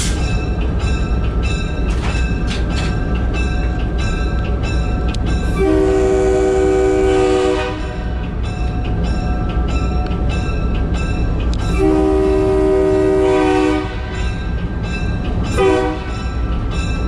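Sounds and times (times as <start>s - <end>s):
regular rail clicks: 0.0s - 17.0s
train rumbling: 0.0s - 17.0s
locomotive air horn blast: 5.6s - 8.0s, 11.8s - 14.2s, 15.6s - 16.1s.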